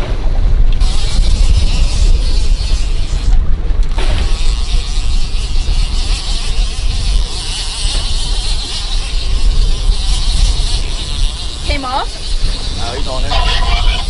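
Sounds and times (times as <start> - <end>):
wind buffeting microphone: 0.0 - 14.0
boat motor buzzing hiss: 4.0 - 14.0.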